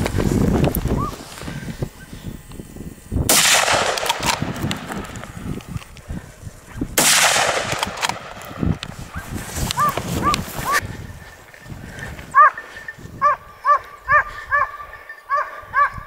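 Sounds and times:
gunshot: 0:03.3 - 0:05.4, 0:07.0 - 0:08.5
dog yelping barks: 0:09.8 - 0:10.8, 0:12.3 - 0:12.6, 0:13.2 - 0:16.0.

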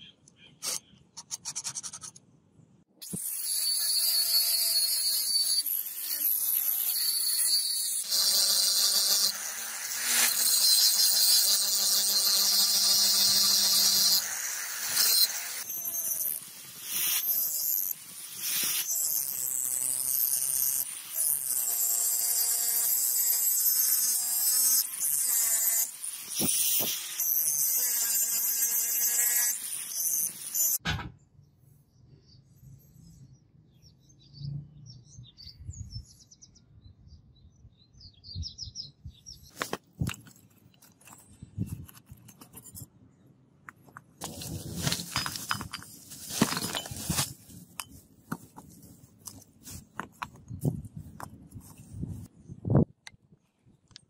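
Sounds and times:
angle grinder grinding steel: 0:03.0 - 0:30.8.

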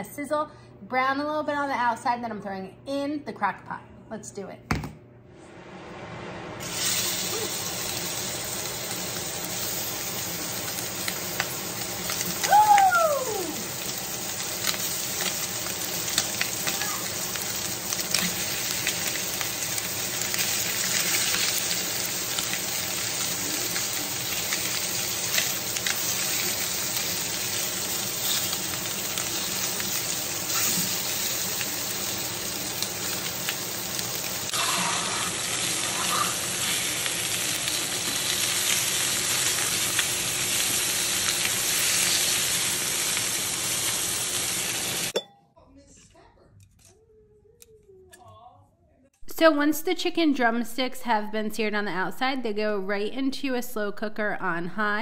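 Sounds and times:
meat sizzling in oil: 0:06.6 - 0:45.2.

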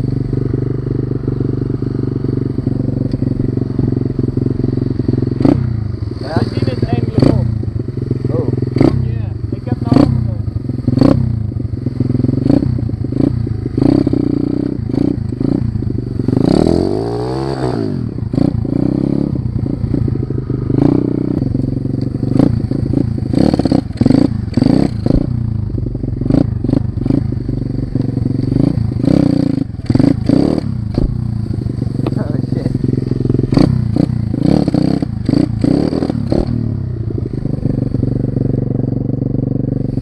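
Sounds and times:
motorbike engine revving: 0:00.0 - 0:40.0
bike knocks and rattles: 0:21.4 - 0:39.5.

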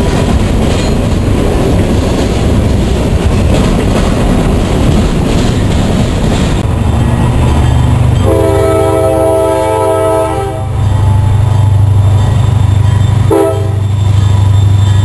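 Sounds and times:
diesel engine rumble: 0:00.0 - 0:15.0
locomotive air horn blasts: 0:08.2 - 0:11.8, 0:13.3 - 0:14.0.

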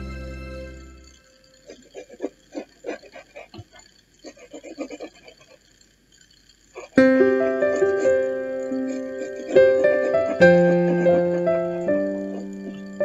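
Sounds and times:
sustained keyboard chord: 0:00.0 - 0:01.6, 0:07.0 - 0:13.0.

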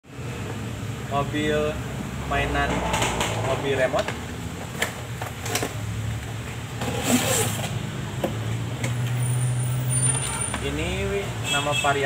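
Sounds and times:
packaging rustling and scraping: 0:06.8 - 0:07.8.

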